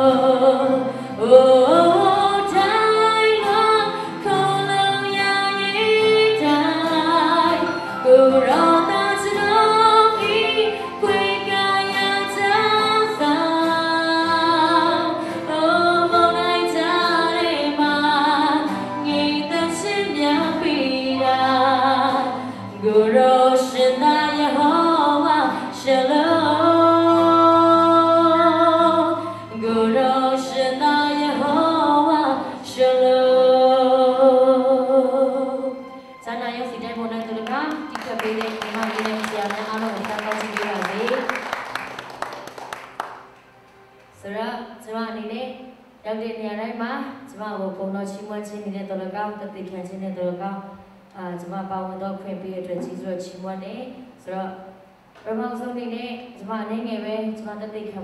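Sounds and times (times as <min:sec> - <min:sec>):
woman singing gospel song: 0:00.0 - 0:35.7, 0:36.3 - 0:41.6.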